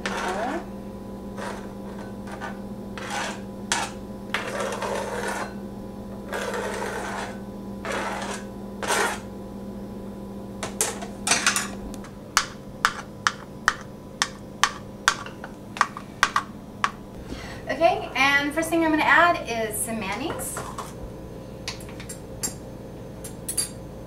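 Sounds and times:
knife scraping glass board: 1.4 - 5.6, 6.3 - 9.3.

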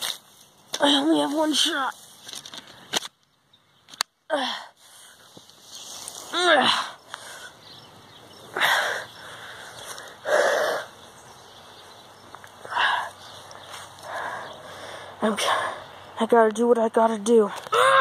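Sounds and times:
boy groaning: 6.3 - 6.9, 17.7 - 18.0
boy crying out: 17.7 - 18.0.

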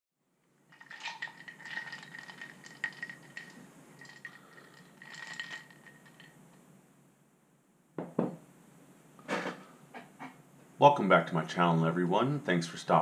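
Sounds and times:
light rattling and clinking: 0.7 - 6.4.

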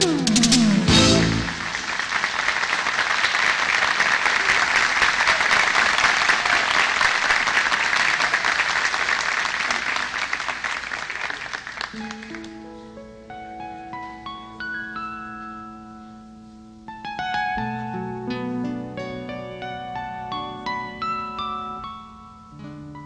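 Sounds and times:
audience applauding: 0.9 - 12.6.

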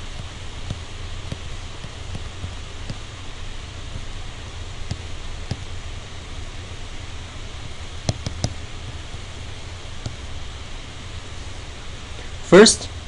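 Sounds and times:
low hum: 0.0 - 13.0
recording hiss: 0.0 - 13.0
stylus tapping tablet screen: 0.1 - 3.1, 4.8 - 5.7, 7.6 - 10.3.

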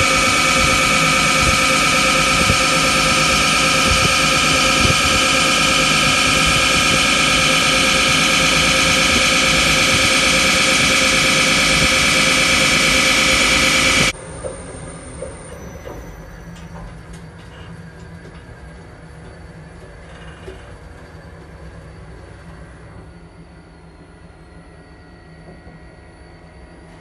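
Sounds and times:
machine hum: 0.0 - 15.1.

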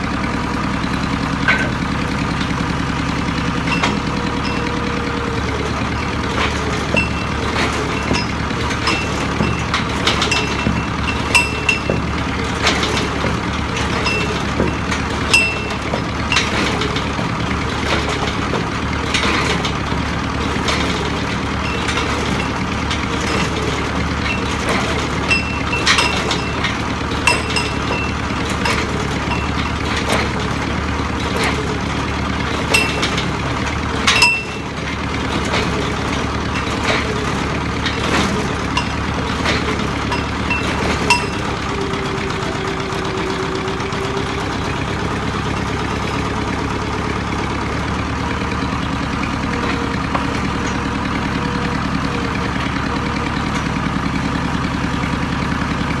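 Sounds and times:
drilling rig engine running: 0.0 - 56.0
winch hauling wire rope: 0.2 - 56.0
sharp metallic clinks: 3.7 - 5.0, 6.9 - 12.1, 13.8 - 16.8, 21.6 - 30.3, 32.7 - 33.3, 34.1 - 34.8, 38.4 - 41.8.

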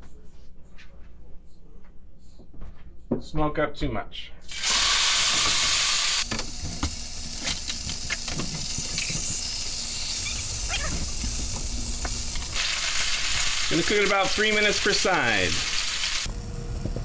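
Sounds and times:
steak sizzling in hot oil: 4.5 - 17.0.

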